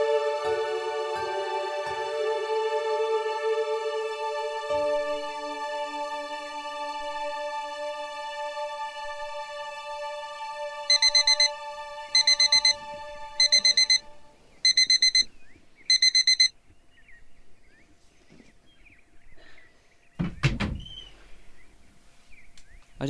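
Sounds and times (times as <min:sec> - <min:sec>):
soft background music: 0:00.0 - 0:15.2
alarm clock beeping: 0:10.9 - 0:11.6, 0:12.2 - 0:12.8, 0:13.4 - 0:14.0, 0:14.6 - 0:15.3, 0:15.9 - 0:16.5.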